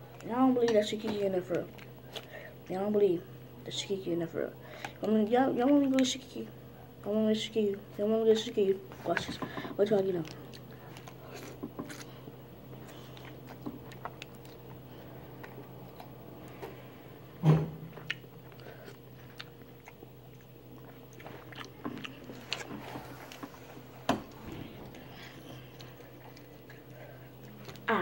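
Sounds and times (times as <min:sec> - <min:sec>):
person chewing noodles: 0:10.2 - 0:17.2, 0:17.9 - 0:27.9.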